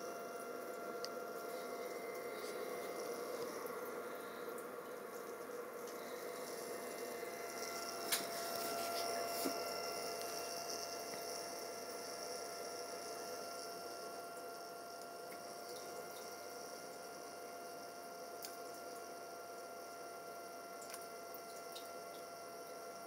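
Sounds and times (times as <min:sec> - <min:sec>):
faint whine: 0:00.0 - 0:15.0
electrical hum: 0:00.0 - 0:23.0.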